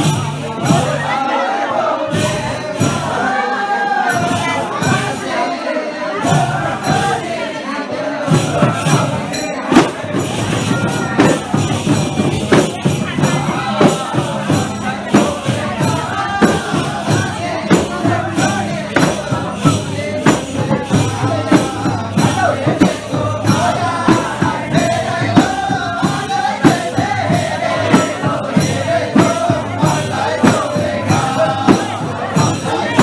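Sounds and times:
voices singing: 0:00.0 - 0:33.0
hand drum beat: 0:08.3 - 0:33.0.

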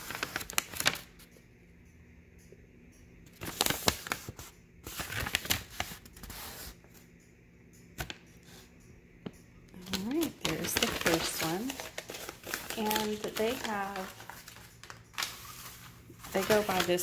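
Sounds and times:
paper rustling and crinkling: 0:00.0 - 0:01.1, 0:03.4 - 0:06.7, 0:09.8 - 0:17.0.

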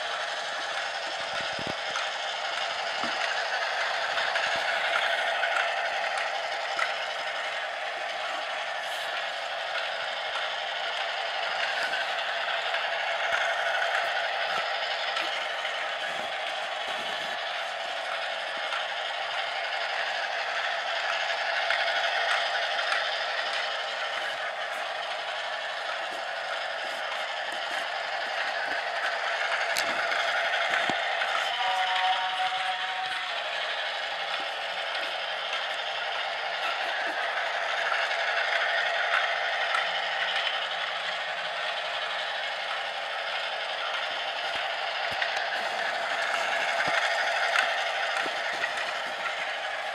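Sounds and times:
plastic wheels rattling on rails: 0:00.0 - 0:49.9
toy train motor whirring: 0:00.0 - 0:49.9.

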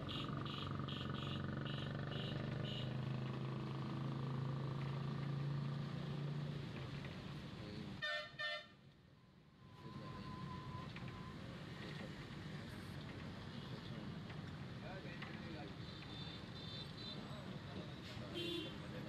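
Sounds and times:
vehicle engine drone: 0:00.0 - 0:08.0.

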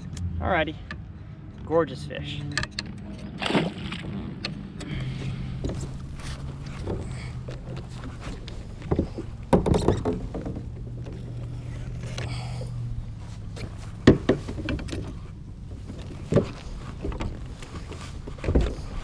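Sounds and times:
low steady hum: 0:04.9 - 0:19.0
knocks on plastic kayak hull: 0:14.0 - 0:14.9.

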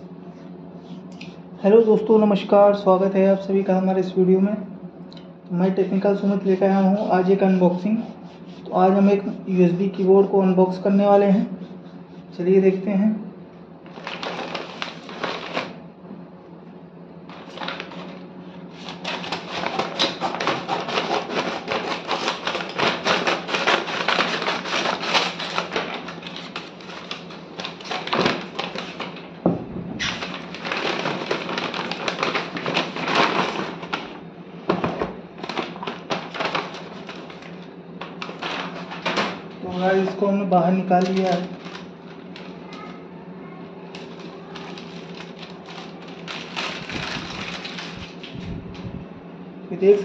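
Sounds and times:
paper bag crinkling: 0:13.8 - 0:15.8, 0:17.3 - 0:29.3, 0:30.0 - 0:34.2, 0:35.4 - 0:42.9, 0:43.9 - 0:48.8
scissors cutting paper: 0:18.7 - 0:29.2, 0:41.0 - 0:42.9, 0:43.9 - 0:48.3.

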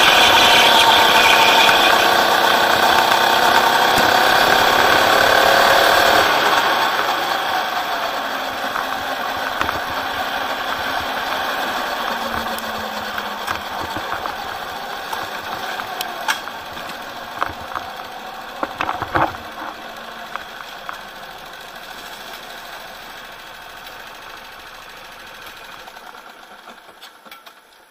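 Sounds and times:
go-kart engine idling: 0:00.0 - 0:27.9
sharp rattles and knocks: 0:02.0 - 0:22.1.

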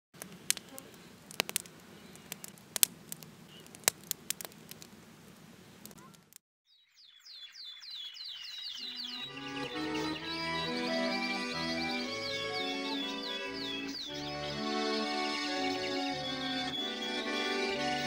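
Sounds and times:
wood fire crackling: 0:00.2 - 0:06.4
high falling chirps: 0:06.7 - 0:14.4
music: 0:09.2 - 0:18.0.

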